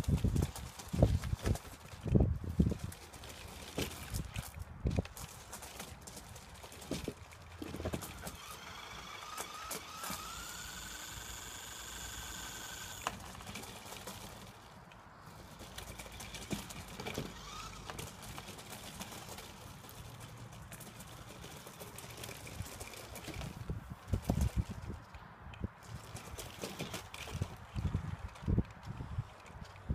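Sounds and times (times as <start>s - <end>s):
tyres crunching on gravel: 0.0s - 25.1s
small electric motor whining: 7.9s - 14.6s, 15.9s - 18.5s.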